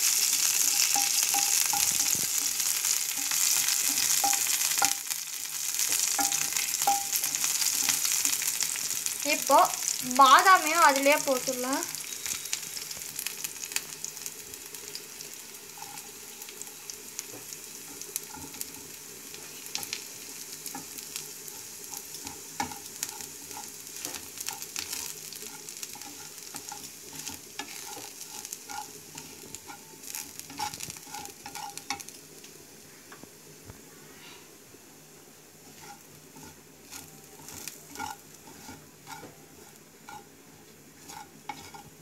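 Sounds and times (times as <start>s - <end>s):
food sizzling in oil: 0.0s - 33.6s, 35.3s - 42.0s
wooden spatula scraping pan: 20.7s - 32.0s, 35.6s - 40.3s, 41.0s - 42.0s.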